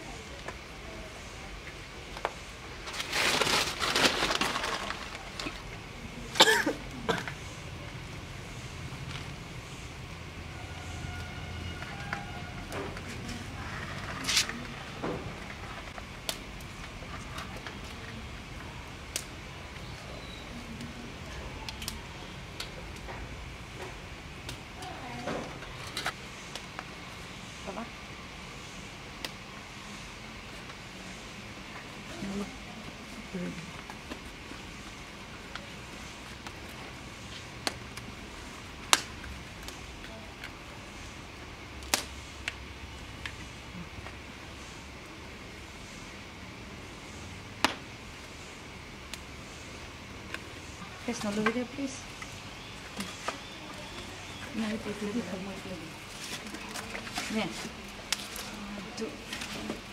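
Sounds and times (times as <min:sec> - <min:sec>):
low background noise: 0:00.0 - 0:59.9
banana leaf crackling: 0:02.2 - 0:07.1, 0:11.0 - 0:23.1, 0:33.1 - 0:44.4, 0:47.6 - 0:59.9.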